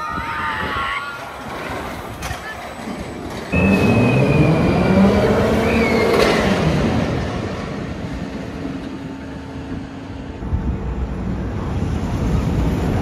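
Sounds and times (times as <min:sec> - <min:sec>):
roller coaster train rumbling: 0:00.0 - 0:13.0.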